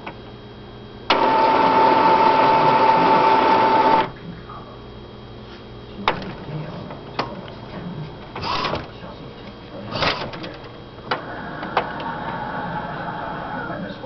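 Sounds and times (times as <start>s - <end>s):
printer rattle: 1.1s - 4.1s, 8.3s - 9.0s, 9.9s - 12.2s
printer sharp clicks: 1.1s - 4.1s, 10.0s - 11.9s
printer mechanism whining: 1.1s - 4.2s, 8.2s - 9.1s, 9.8s - 13.9s.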